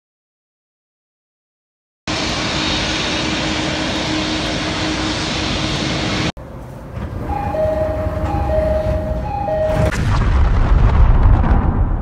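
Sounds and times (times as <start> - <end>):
jet engines roaring: 2.1 - 10.0
two-note door chime: 7.2 - 9.9.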